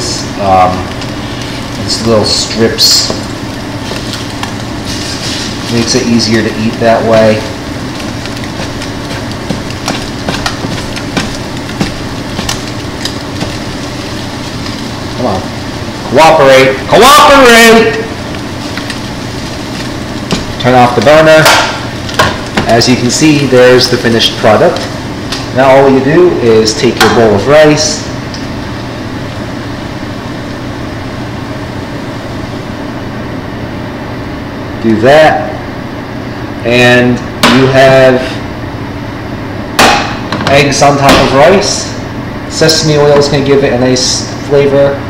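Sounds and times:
steady hum: 0:00.0 - 0:45.0
ventilation fan whirring: 0:00.0 - 0:45.0
spatula tapping frying pan: 0:08.0 - 0:13.8, 0:19.8 - 0:20.6.

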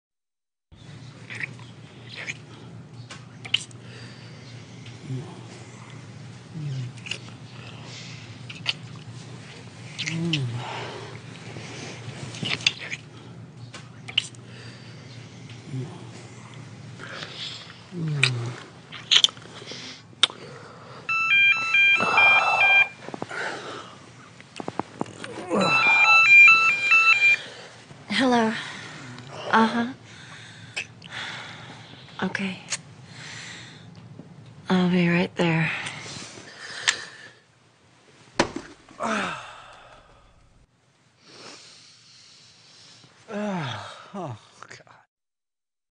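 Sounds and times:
warbling electronic ringtone: 0:21.1 - 0:23.0, 0:25.4 - 0:27.5
person sighing: 0:25.2 - 0:26.2, 0:39.0 - 0:40.4, 0:43.3 - 0:44.4.

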